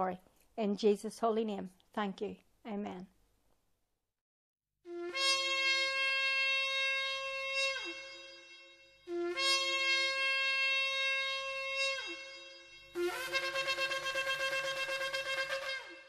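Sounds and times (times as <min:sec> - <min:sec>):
shofar blasts: 0:04.9 - 0:16.0.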